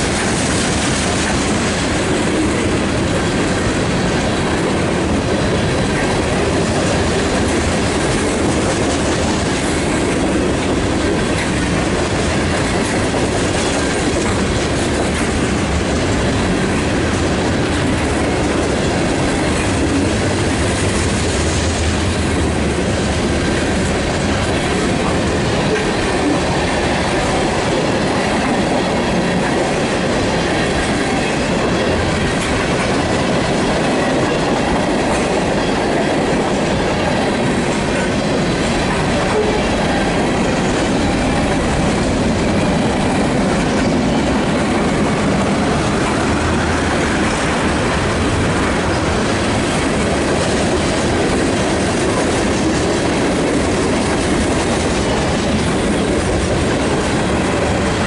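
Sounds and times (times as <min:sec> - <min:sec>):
train wheels on rails: 0:00.0 - 0:58.0.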